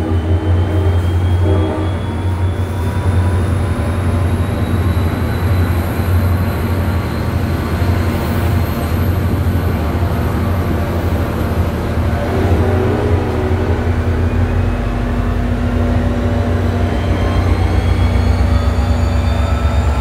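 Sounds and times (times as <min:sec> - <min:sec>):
diesel train low drone: 0:00.0 - 0:20.0
faint whine rising in pitch: 0:14.5 - 0:20.0.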